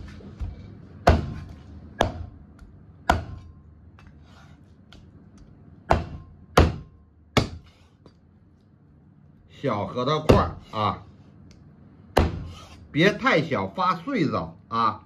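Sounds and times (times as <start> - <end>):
cleaver chopping on wooden block: 1.0 - 2.3, 3.1 - 3.5, 5.9 - 7.7, 10.3 - 10.6, 12.2 - 12.5.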